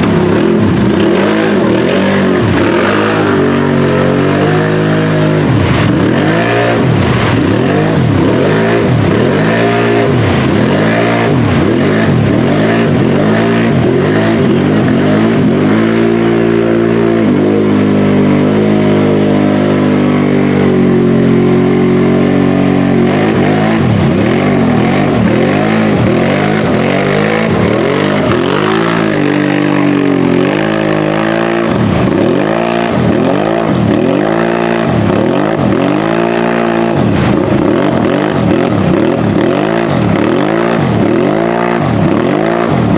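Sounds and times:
atv engine revving: 0.0 - 42.9
tyres spinning in mud: 21.8 - 42.8.

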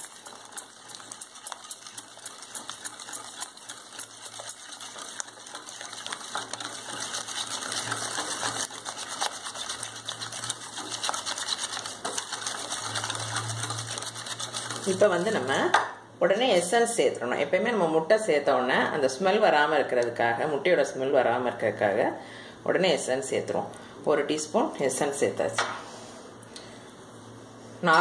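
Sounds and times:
whisk clicking against glass bowl: 0.0 - 15.7.

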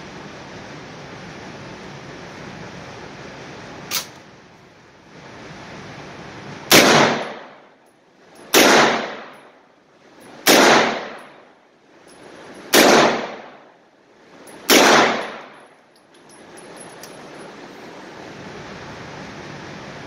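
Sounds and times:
submachine gun bursts echoing: 6.7 - 7.6, 8.4 - 9.6, 10.4 - 11.5, 12.5 - 13.7, 14.5 - 15.7.

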